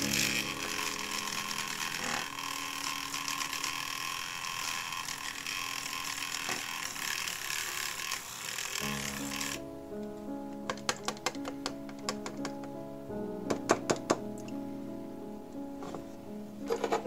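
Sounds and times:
rotary tool running: 0:00.0 - 0:09.6.

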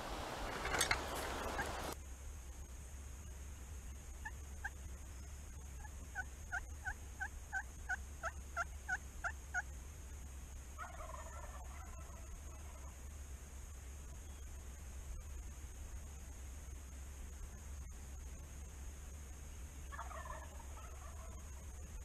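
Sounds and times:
distant turkey gobble: 0:00.0 - 0:02.0, 0:04.2 - 0:09.7, 0:10.8 - 0:13.0, 0:19.8 - 0:21.8
turkey yelps: 0:00.0 - 0:02.0, 0:10.8 - 0:12.9, 0:19.9 - 0:21.6.

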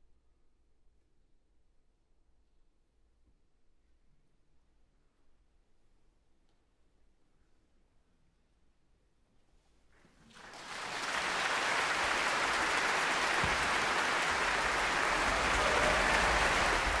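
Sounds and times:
audience applause: 0:10.3 - 0:17.0.

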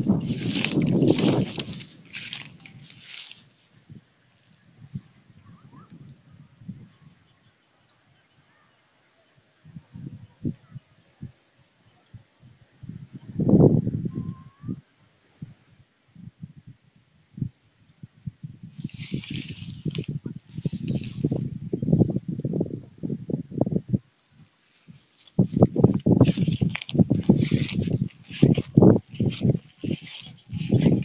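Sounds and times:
wind gusting on microphone: 0:00.0 - 0:07.4, 0:09.6 - 0:11.4, 0:12.1 - 0:31.0
faint insect chirping: 0:00.8 - 0:22.1.

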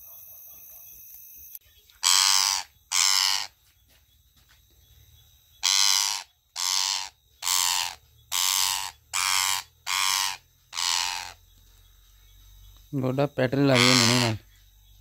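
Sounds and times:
parakeet screeching: 0:02.0 - 0:03.5, 0:05.6 - 0:11.4, 0:13.7 - 0:14.4.

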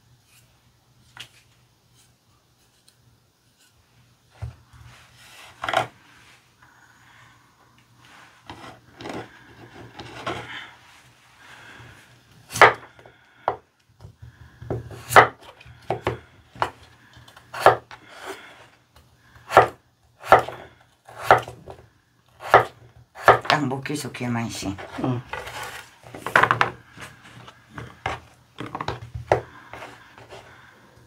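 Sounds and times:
soft handling sounds: 0:24.6 - 0:31.0.

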